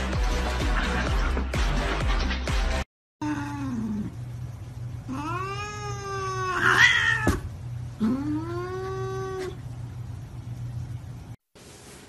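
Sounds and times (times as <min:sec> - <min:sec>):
cat yowling: 0:05.1 - 0:09.6.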